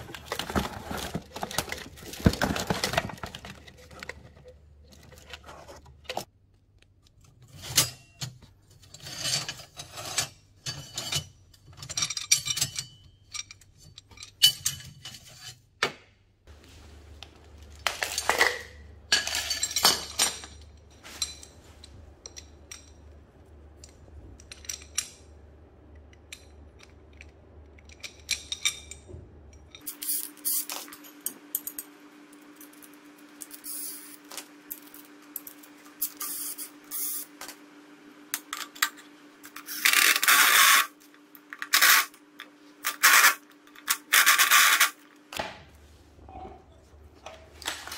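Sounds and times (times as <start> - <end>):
metal parts clinking on tile: 18.0 - 21.5, 29.7 - 31.9.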